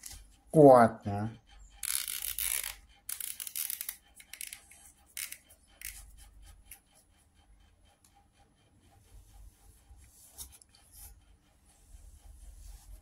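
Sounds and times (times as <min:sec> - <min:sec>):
fingers rustling through hair: 0:09.1 - 0:13.0.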